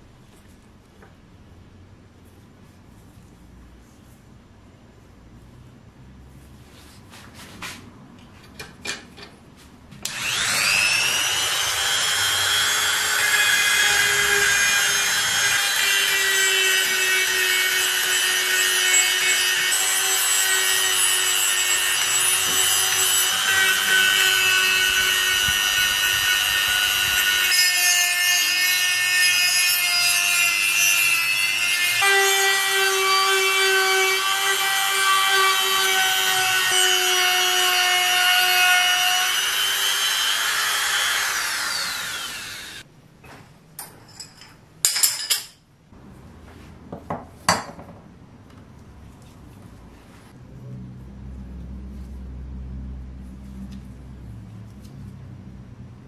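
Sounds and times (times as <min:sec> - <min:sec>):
rotary tool sanding metal: 0:10.1 - 0:42.8.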